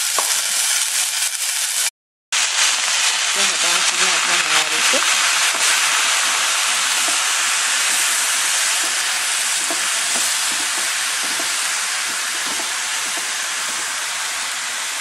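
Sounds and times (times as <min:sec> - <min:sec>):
greens sizzling in hot oil: 0:00.0 - 0:15.0
wooden spoon stirring: 0:04.8 - 0:15.0.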